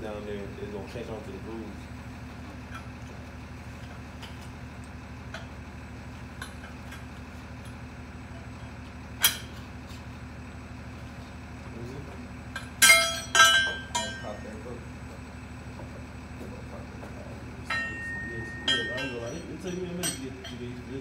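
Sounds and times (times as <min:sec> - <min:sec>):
steady low hum: 0:00.0 - 0:21.0
steel bar clanking on metal: 0:12.6 - 0:14.4, 0:17.7 - 0:20.8.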